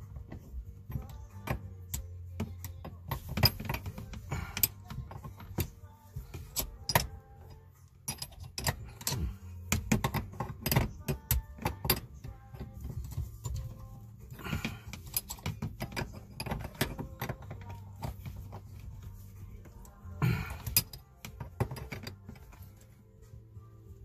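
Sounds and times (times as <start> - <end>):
background music: 0.0 - 24.0
wrench clicking on metal: 0.9 - 12.8, 14.5 - 18.6, 20.5 - 22.5.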